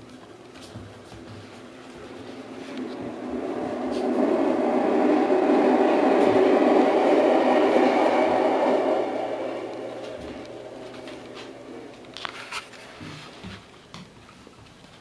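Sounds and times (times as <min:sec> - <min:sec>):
dense steady noise: 0:02.2 - 0:13.1.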